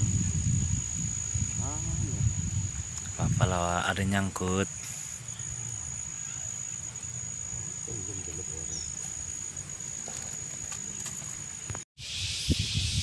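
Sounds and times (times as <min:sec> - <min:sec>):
insect singing high note: 0:00.0 - 0:03.9, 0:12.0 - 0:13.0.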